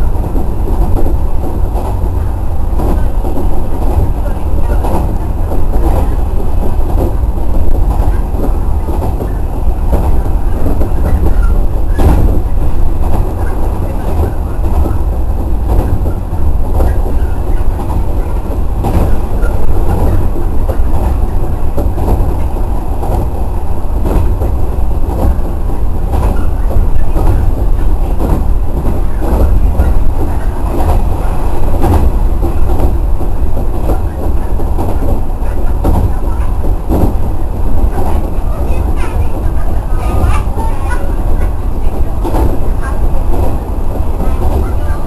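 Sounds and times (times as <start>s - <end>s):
train running low rumble: 0.0s - 45.0s.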